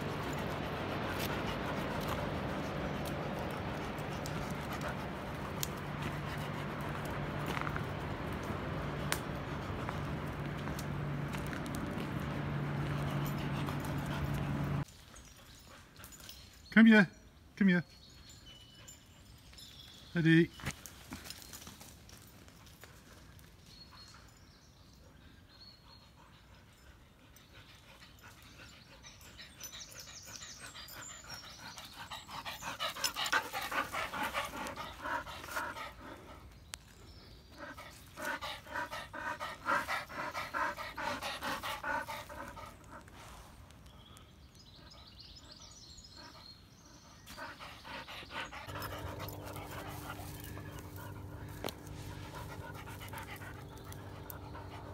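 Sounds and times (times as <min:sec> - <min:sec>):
dog panting: 0:00.0 - 0:14.8, 0:26.0 - 0:36.6, 0:37.5 - 0:43.6, 0:44.8 - 0:54.9.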